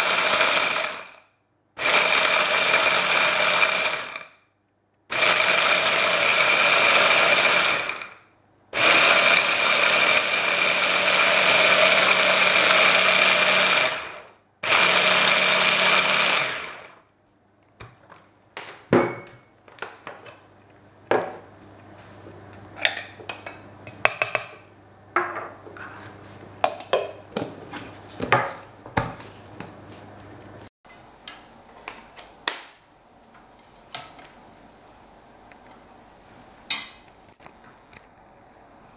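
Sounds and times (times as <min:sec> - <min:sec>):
hand blender motor chopping: 0:00.0 - 0:01.2, 0:01.8 - 0:04.3, 0:05.1 - 0:08.1, 0:08.8 - 0:16.9.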